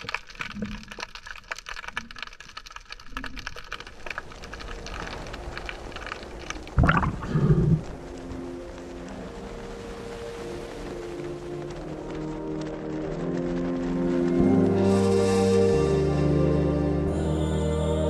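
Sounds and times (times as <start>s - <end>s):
underwater crackling clicks: 0.0s - 8.2s
low gurgling burst: 6.6s - 8.1s.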